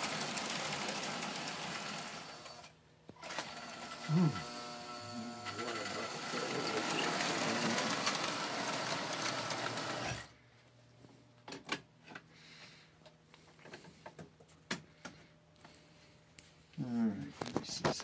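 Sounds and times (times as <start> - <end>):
toy train rattling on track: 5.6 - 10.2.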